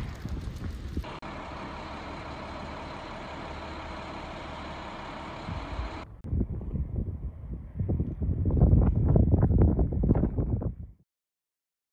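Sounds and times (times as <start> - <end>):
wind rumble on microphone: 0.0 - 1.2, 5.4 - 11.0
fire engines idling: 0.0 - 6.2.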